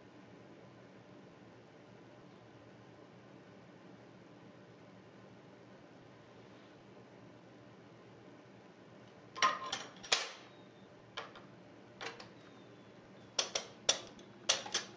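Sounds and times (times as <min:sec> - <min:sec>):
cutlery clinking in a drawer: 0:09.4 - 0:10.4.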